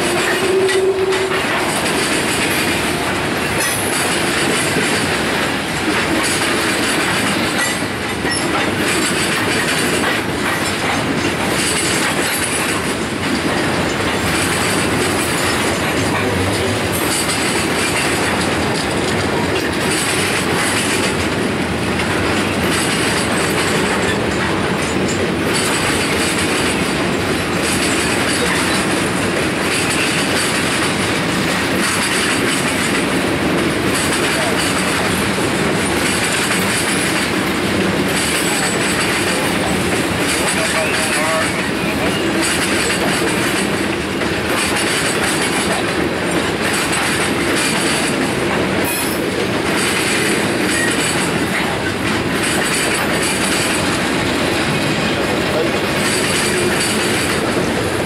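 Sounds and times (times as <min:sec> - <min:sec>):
freight train rumbling past: 0:00.0 - 0:58.0
wheels clacking over rail joints: 0:00.0 - 0:58.0.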